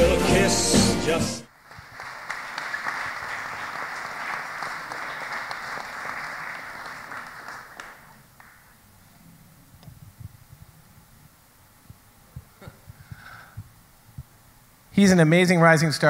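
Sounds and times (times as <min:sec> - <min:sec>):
song: 0:00.0 - 0:01.5
audience applauding: 0:01.5 - 0:08.8.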